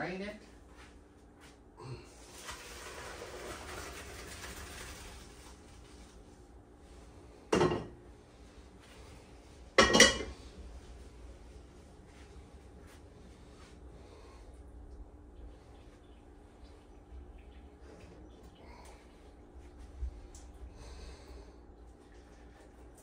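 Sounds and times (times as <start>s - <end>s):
hot water pouring into sink: 2.2s - 5.7s
metal pots clanking: 9.8s - 10.4s.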